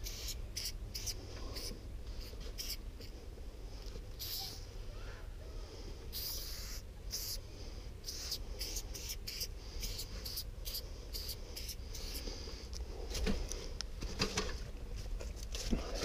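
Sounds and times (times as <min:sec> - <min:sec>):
spray paint can hissing: 0:00.0 - 0:02.8, 0:04.2 - 0:04.5, 0:06.1 - 0:07.4, 0:08.0 - 0:12.2.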